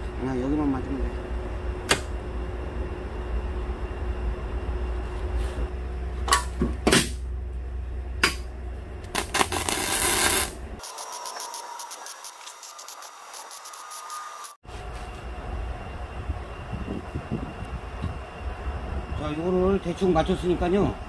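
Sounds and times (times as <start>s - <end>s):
low hum: 0.0s - 10.8s, 14.3s - 19.6s
welding arc crackling and hissing: 9.1s - 14.6s.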